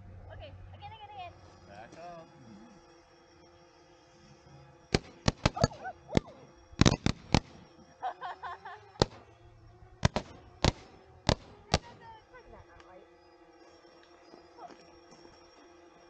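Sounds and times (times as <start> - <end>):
fireworks cracks and bangs: 5.0 - 7.6, 9.0 - 9.2, 10.0 - 12.0.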